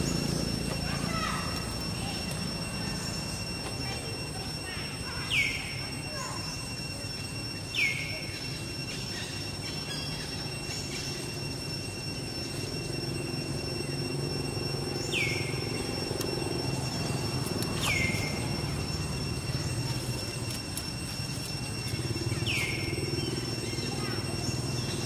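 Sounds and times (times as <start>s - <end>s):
high-pitched whine: 0.0s - 25.0s
high squealing calls: 14.1s - 25.0s.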